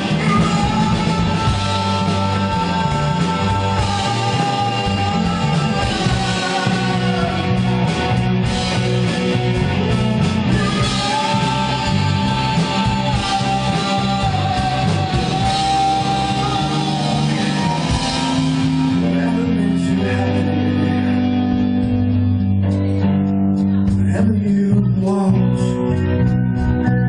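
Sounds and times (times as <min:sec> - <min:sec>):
man singing: 0:00.0 - 0:22.8, 0:23.8 - 0:27.0
rock band playing: 0:00.0 - 0:27.0.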